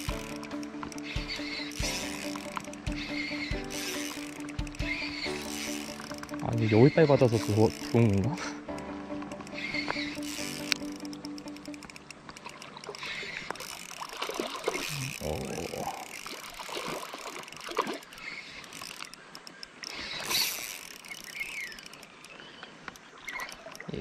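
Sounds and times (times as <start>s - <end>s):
water splashing and sloshing: 11.4s - 24.0s.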